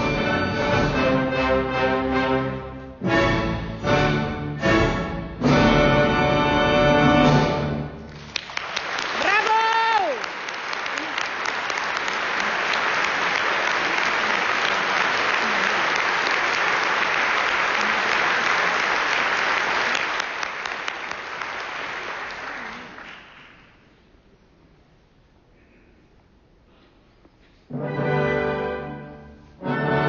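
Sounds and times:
audience applauding: 8.0 - 23.8.

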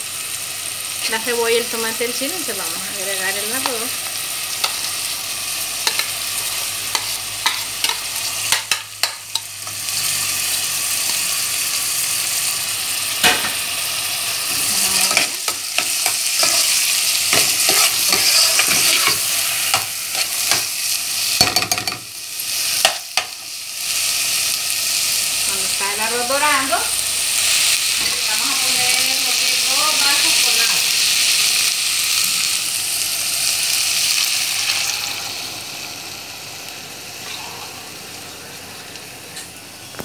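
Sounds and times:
rice sizzling in oil: 0.0 - 40.0
metal spoon scraping a pot: 16.0 - 20.6.

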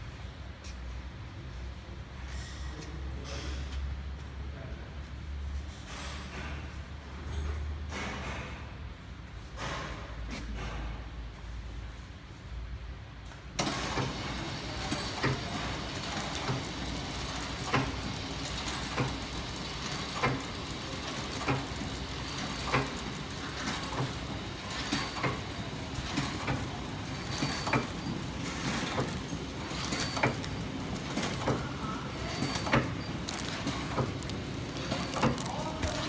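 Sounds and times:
machine knocking: 13.6 - 36.0
packing machine hum: 13.6 - 36.0.

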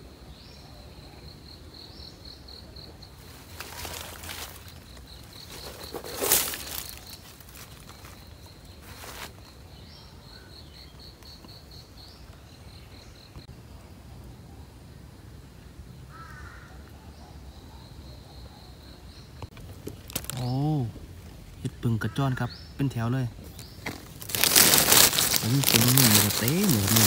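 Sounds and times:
insect chirping: 0.0 - 27.0.

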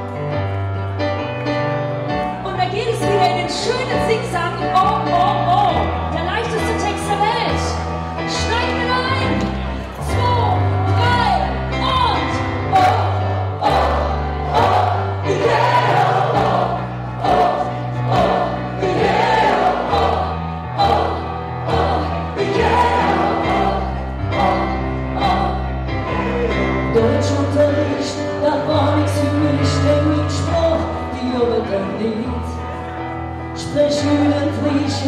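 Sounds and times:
keyboard accompaniment: 0.0 - 35.0
bass line: 7.2 - 32.1.

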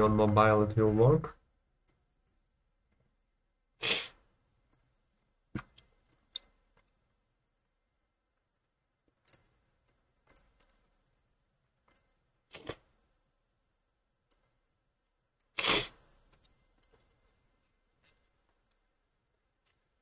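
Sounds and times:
computer mouse clicking: 9.2 - 9.5, 10.2 - 10.8, 11.8 - 12.7.

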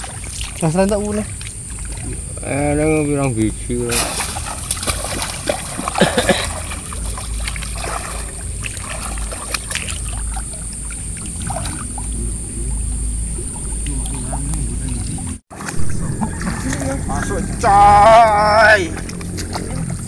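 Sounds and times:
steady high whine: 0.0 - 20.0
hands splashing in water: 3.9 - 12.1.

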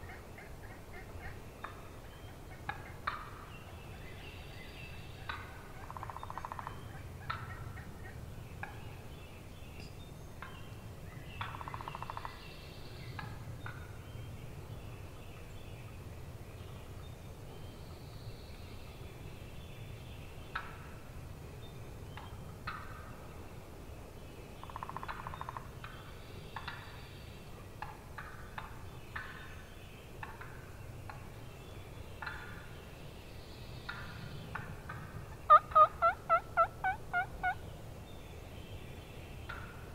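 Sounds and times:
turkeys gobbling: 0.0 - 3.4, 5.3 - 8.8, 11.4 - 12.3, 24.6 - 25.6, 33.9 - 37.6
short turkey calls: 34.5 - 37.6.

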